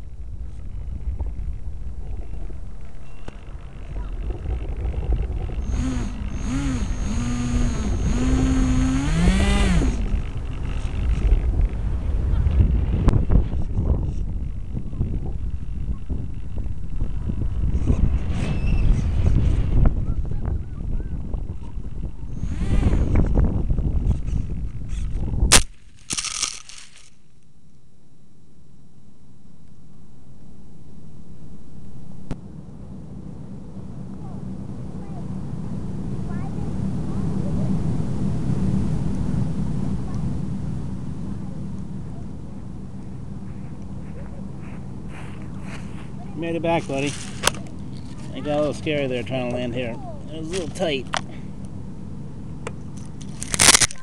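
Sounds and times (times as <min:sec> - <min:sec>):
electric motor propeller whine: 0:00.0 - 0:19.9, 0:21.7 - 0:25.3
wind rushing over camera: 0:00.0 - 0:27.2
crackling scrape through grass: 0:24.1 - 0:27.2, 0:43.4 - 0:49.0, 0:53.0 - 0:54.0
sharp crack of impact: 0:25.5 - 0:27.2, 0:53.2 - 0:54.0.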